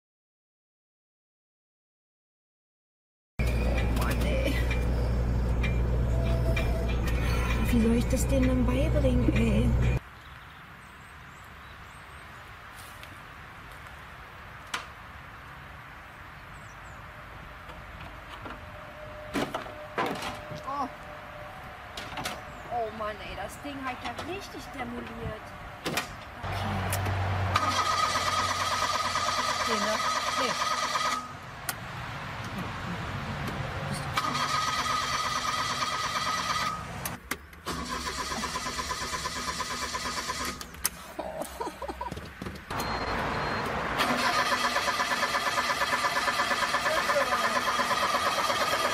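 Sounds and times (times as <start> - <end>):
steady outdoor background noise: 3.4 - 48.9
car starter motor cranking: 27.5 - 31.3, 34.2 - 40.9, 44.0 - 48.9.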